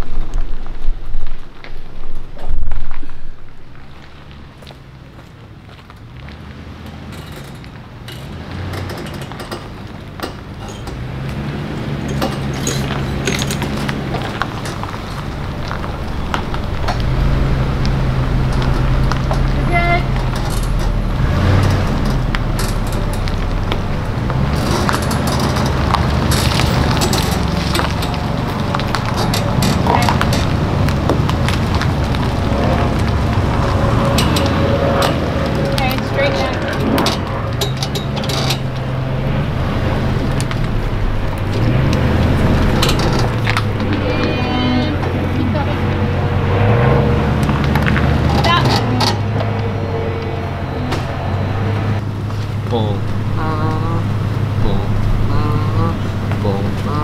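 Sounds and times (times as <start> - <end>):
vehicle engine running: 0.0 - 57.0
clicks and knocks: 6.9 - 39.1, 40.0 - 44.4.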